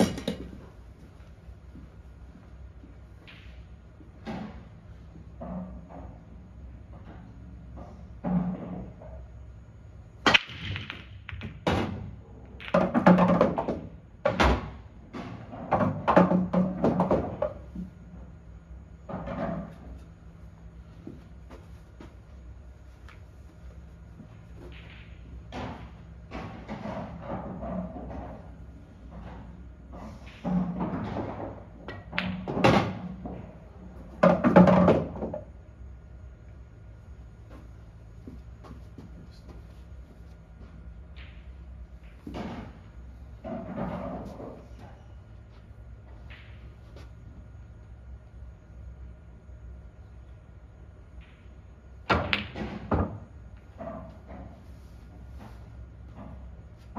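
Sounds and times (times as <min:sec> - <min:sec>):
pool balls clacking: 0:00.0 - 0:01.0, 0:10.3 - 0:18.2, 0:19.0 - 0:35.6, 0:37.1 - 0:45.1, 0:51.2 - 0:56.9
ball rolling in return channel: 0:00.0 - 0:09.5, 0:10.2 - 0:47.6.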